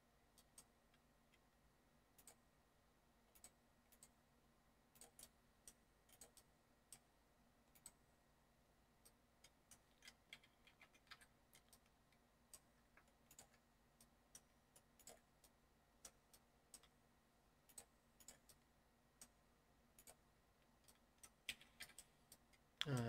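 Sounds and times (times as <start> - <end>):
low steady hum: 0.0 - 23.0
mouse and keyboard clicking: 5.0 - 7.0, 9.0 - 17.0, 20.0 - 20.2, 20.8 - 22.6.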